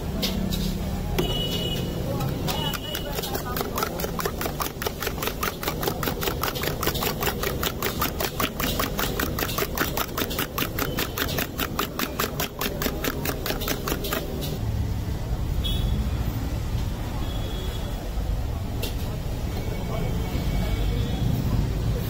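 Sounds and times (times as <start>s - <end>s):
metal spoon beating eggs: 1.2s - 14.6s.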